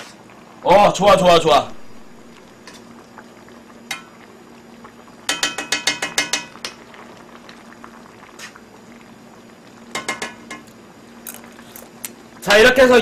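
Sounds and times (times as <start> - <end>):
spoon clinking against pan: 5.3 - 6.5, 10.0 - 10.6.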